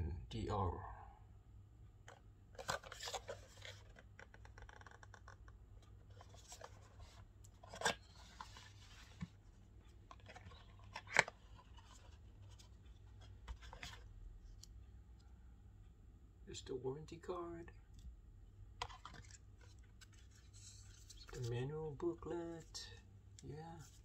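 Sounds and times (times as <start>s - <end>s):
papery scraping and rubbing: 19.1s - 21.6s.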